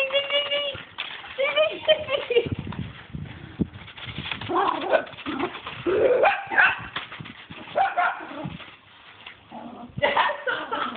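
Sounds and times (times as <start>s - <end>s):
small dogs barking: 6.1s - 6.9s, 7.7s - 8.5s.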